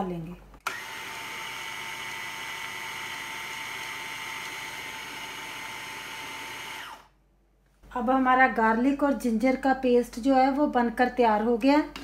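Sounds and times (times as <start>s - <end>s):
food processor motor whining: 0.6s - 7.2s.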